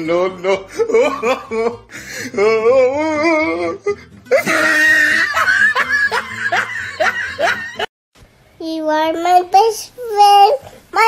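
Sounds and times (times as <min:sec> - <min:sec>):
person laughing hard: 0:00.4 - 0:02.6, 0:04.3 - 0:07.9
wavering vocal sound: 0:02.3 - 0:04.9.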